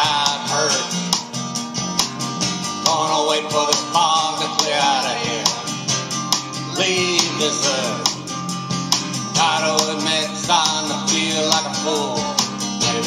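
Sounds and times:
man singing: 0.0s - 1.1s, 2.8s - 5.9s, 6.7s - 8.2s, 9.4s - 13.0s
country song with acoustic guitar: 0.0s - 13.0s.

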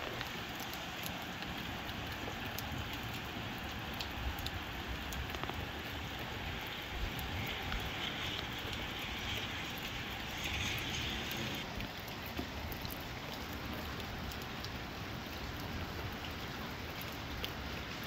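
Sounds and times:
steady rain falling: 0.0s - 18.0s
gusty wind rumble: 6.0s - 11.7s.

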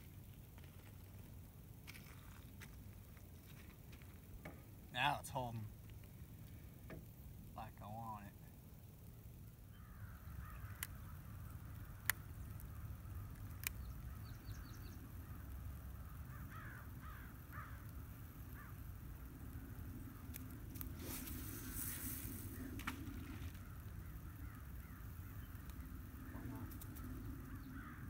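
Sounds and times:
sharp clicks: 10.6s - 14.4s
fishing reel casting hiss: 20.2s - 23.7s
birds calling in flight: 21.0s - 28.0s.

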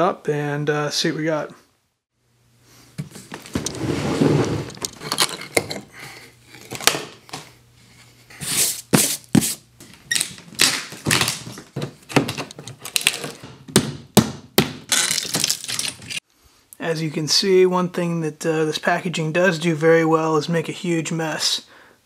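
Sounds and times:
wood slats scraping loose: 3.4s - 5.8s.

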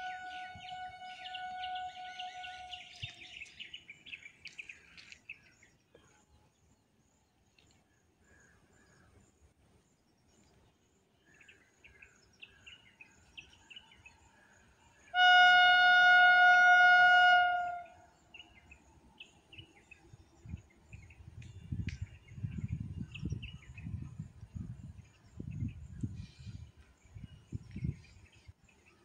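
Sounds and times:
train horn blast: 0.0s - 3.1s, 15.1s - 18.0s
birds chirping: 0.0s - 5.6s.

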